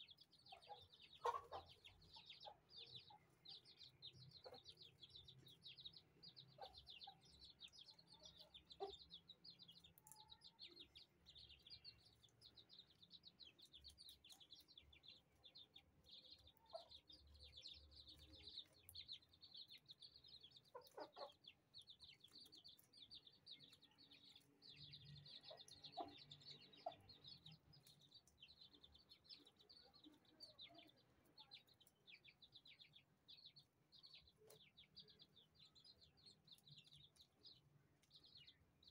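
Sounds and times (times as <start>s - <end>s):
chicks peeping: 0.0s - 38.9s
hen clucking: 0.5s - 3.2s, 20.7s - 21.5s.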